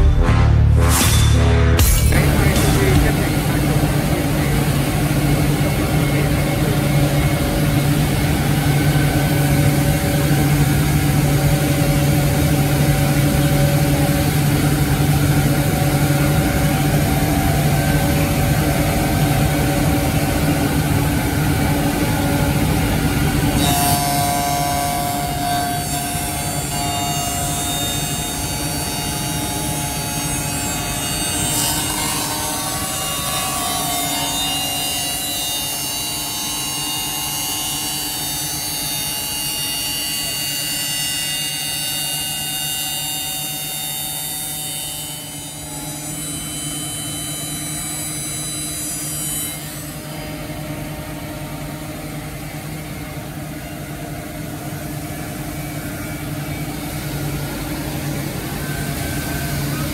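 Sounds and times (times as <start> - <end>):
machine motor hum: 0.0 - 49.2
cutters whining through wood: 1.8 - 51.2, 54.8 - 59.9.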